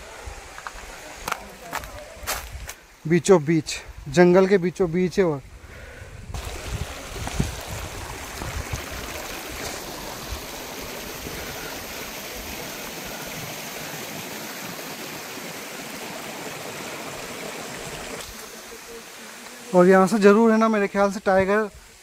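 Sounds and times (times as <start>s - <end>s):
river water rushing: 6.4s - 22.0s.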